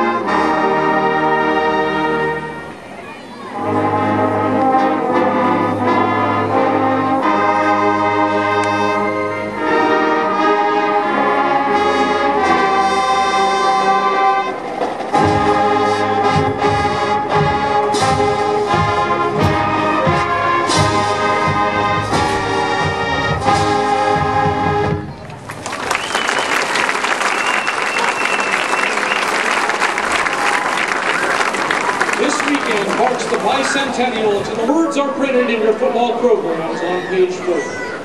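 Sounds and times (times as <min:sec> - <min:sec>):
brass holding slow chords: 0:00.0 - 0:02.9, 0:03.5 - 0:25.1
drum beats: 0:14.6 - 0:25.5.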